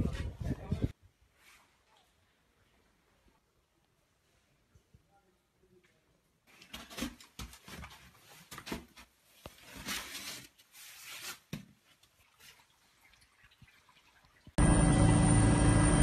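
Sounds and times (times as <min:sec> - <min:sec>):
rustling and scraping in debris: 0:06.5 - 0:13.0.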